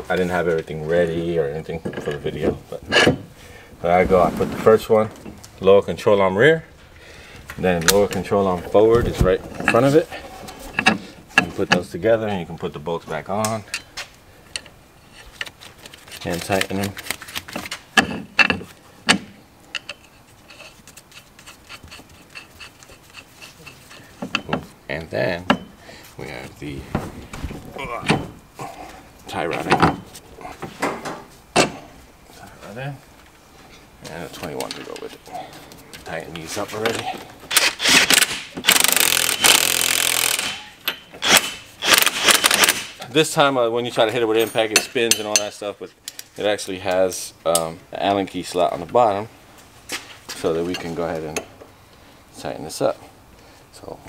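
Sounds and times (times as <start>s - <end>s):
metal hardware clanking: 1.8s - 3.3s, 7.6s - 12.0s, 17.9s - 25.8s, 30.7s - 31.9s, 36.0s - 39.5s, 40.1s - 42.8s, 44.3s - 46.3s
impact wrench hammering: 37.5s - 43.0s.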